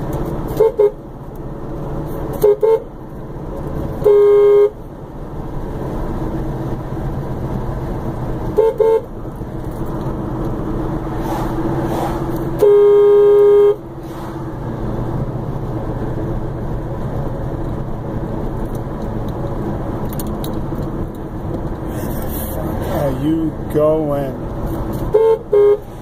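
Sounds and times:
car engine humming: 0.0s - 26.0s
tyres on the road: 0.0s - 26.0s
car horn: 0.5s - 1.0s, 2.3s - 2.9s, 4.0s - 4.8s, 8.5s - 9.1s, 12.6s - 13.9s, 25.1s - 26.0s.

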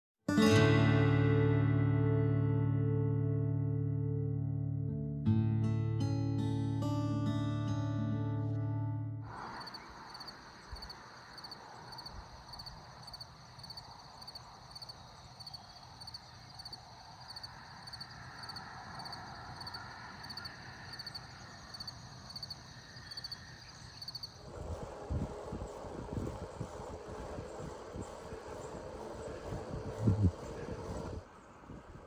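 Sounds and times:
crickets chirping: 9.2s - 32.0s
wind on microphone: 24.4s - 32.0s.

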